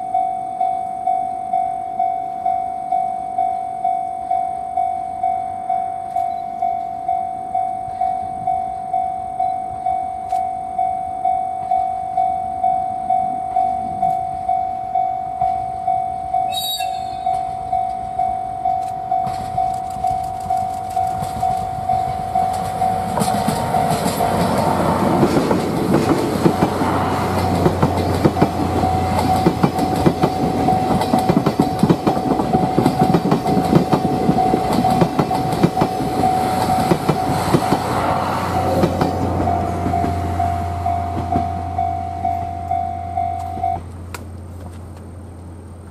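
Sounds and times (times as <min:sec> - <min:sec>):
level crossing bell ringing: 0:00.0 - 0:25.0, 0:38.5 - 0:43.8
diesel locomotive engine: 0:00.0 - 0:45.9
train wheels clickety-clack: 0:16.4 - 0:45.1.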